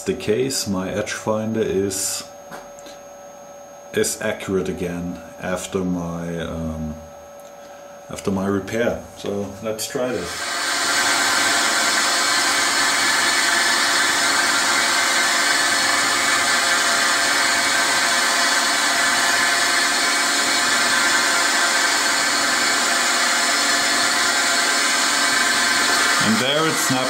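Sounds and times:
milling machine spindle whirring: 0:09.9 - 0:27.0.

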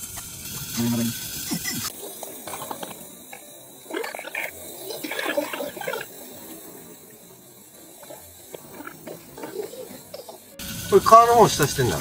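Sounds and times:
gulping a drink: 0:03.9 - 0:06.2.

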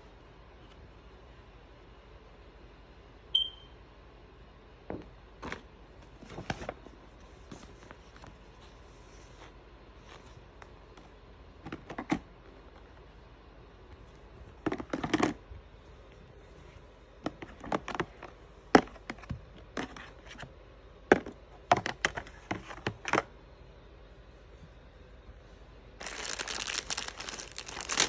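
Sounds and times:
plastic trays clicking and knocking: 0:14.6 - 0:15.4, 0:17.2 - 0:20.2, 0:21.1 - 0:23.3.

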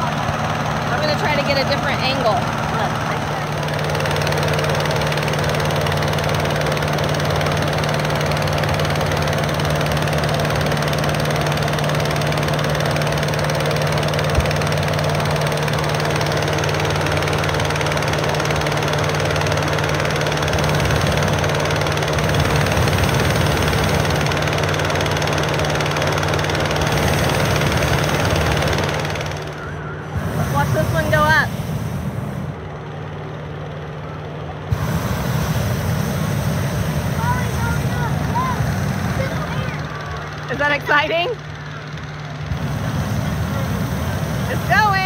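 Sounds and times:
inflator fan engine hum: 0:00.0 - 0:45.0
rush of air: 0:30.1 - 0:32.6, 0:34.7 - 0:39.5, 0:42.5 - 0:45.0.

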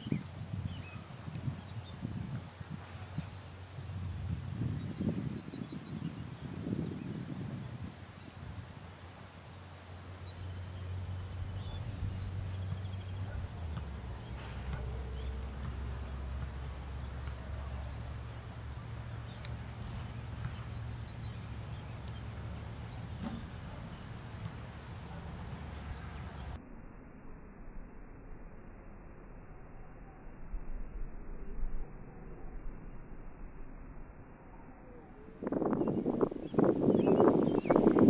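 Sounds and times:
bird chirps: 0:09.6 - 0:26.6, 0:34.9 - 0:38.0
low rumble: 0:09.6 - 0:38.0.

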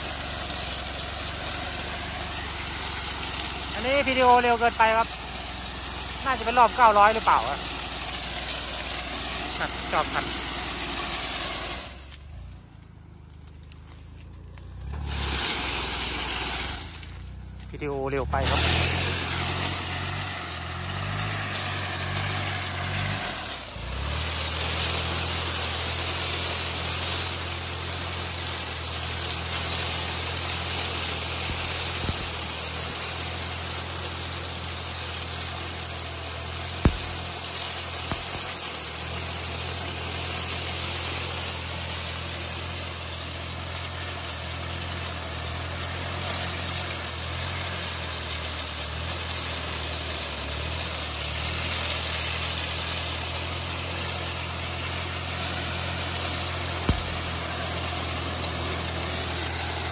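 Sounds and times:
mulcher shredding with rushing hiss: 0:00.0 - 0:59.9
tractor diesel engine under load: 0:00.0 - 0:59.9
sharp knock: 0:36.9 - 0:37.4.

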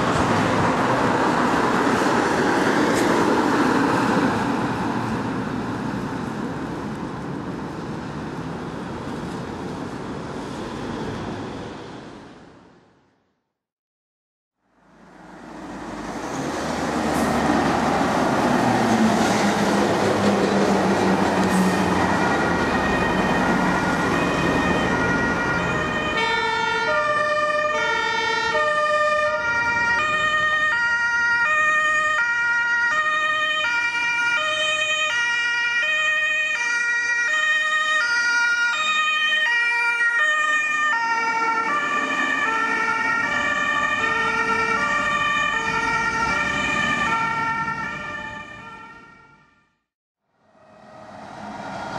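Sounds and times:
road traffic: 0:00.0 - 0:13.5, 0:14.6 - 0:51.9
lorry engine passing: 0:14.8 - 0:27.7, 0:50.3 - 0:51.9
two-tone ambulance siren: 0:20.6 - 0:51.9.

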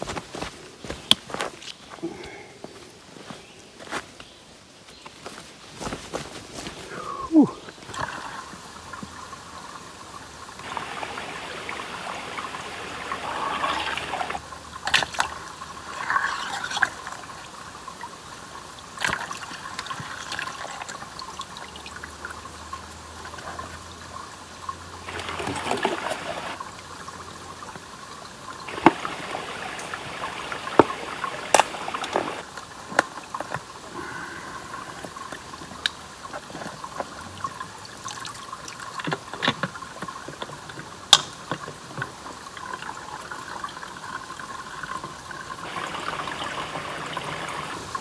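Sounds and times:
creek trickling: 0:06.5 - 0:48.0
water bottle gurgling as filled: 0:10.6 - 0:14.4, 0:15.2 - 0:17.3, 0:25.0 - 0:26.6, 0:28.7 - 0:32.5, 0:42.6 - 0:48.0.

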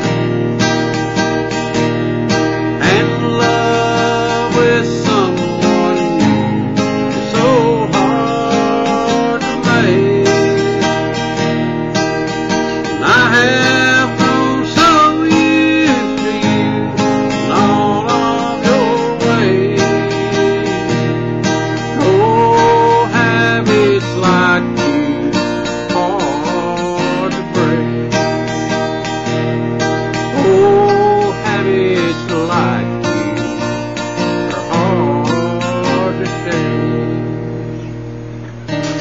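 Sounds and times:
man singing: 0:00.0 - 0:00.3, 0:02.5 - 0:11.6, 0:12.8 - 0:29.0, 0:30.2 - 0:37.8
acoustic guitar strumming: 0:00.0 - 0:39.0.

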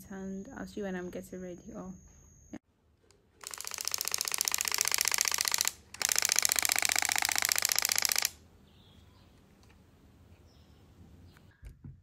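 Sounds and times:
camera lens motor grinding: 0:03.4 - 0:08.3.

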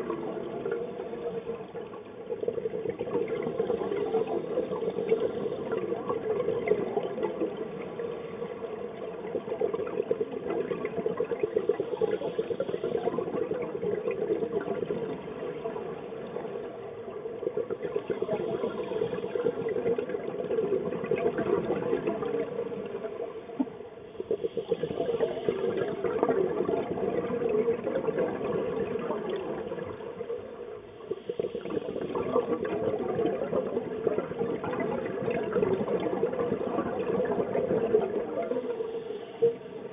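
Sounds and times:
fine crackling underwater: 0:00.0 - 0:39.9
muffled underwater rush: 0:00.0 - 0:39.9.

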